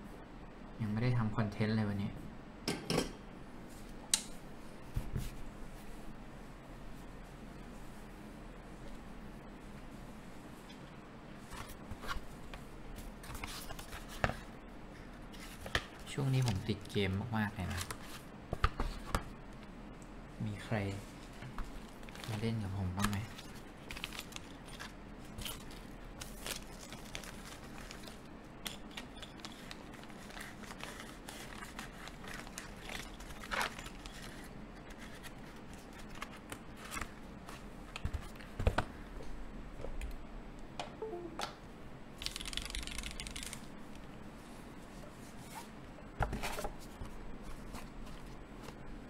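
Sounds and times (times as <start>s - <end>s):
packaging rustling: 21.6s - 38.6s.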